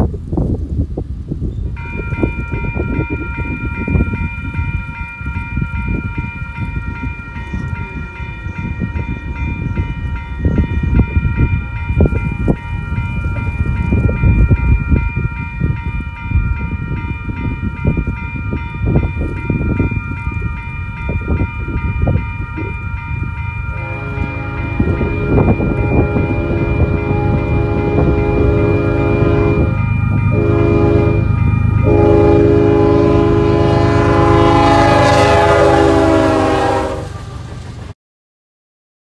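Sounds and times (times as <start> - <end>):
wind buffeting microphone: 0.0 - 37.9
crossing bell ringing: 1.8 - 37.4
locomotive horn: 23.7 - 37.3.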